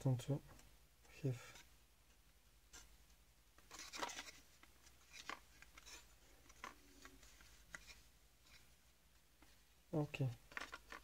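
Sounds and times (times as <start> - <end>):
plastic scrape: 3.6 - 8.7.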